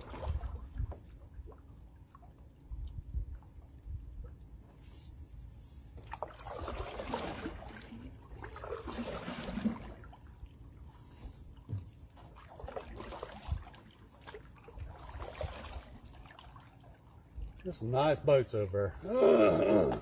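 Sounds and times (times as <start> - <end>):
canoe paddle strokes in water: 0.0 - 19.0
water trickling and splashing: 0.0 - 20.0.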